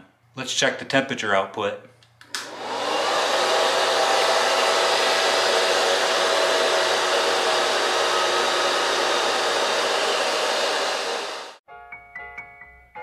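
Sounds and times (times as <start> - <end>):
heater blower fan rushing air: 2.3 - 11.6.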